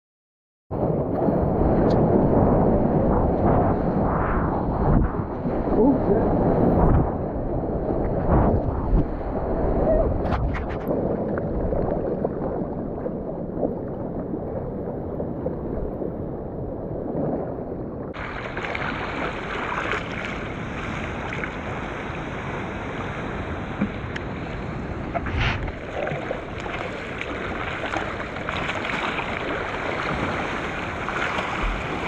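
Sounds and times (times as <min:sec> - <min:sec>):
wind on microphone: 0:00.7 - 0:32.0
water sloshing and lapping: 0:18.1 - 0:32.0.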